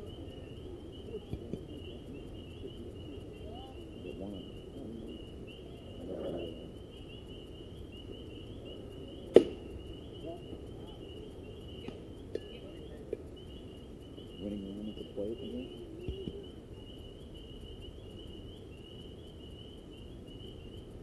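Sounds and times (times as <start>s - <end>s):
faint background voices: 0.0s - 7.4s, 8.2s - 17.0s
insects chirring: 0.0s - 21.0s
baseball bat crack: 9.3s - 9.7s.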